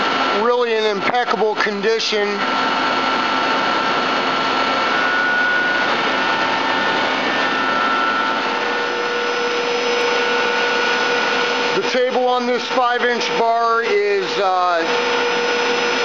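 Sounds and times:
machinery whirring hum: 0.0s - 16.0s
faint whining tones: 2.5s - 11.8s.

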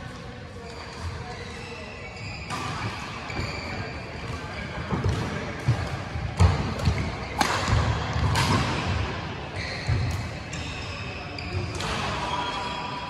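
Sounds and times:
racket hitting shuttlecock: 4.2s - 10.7s.

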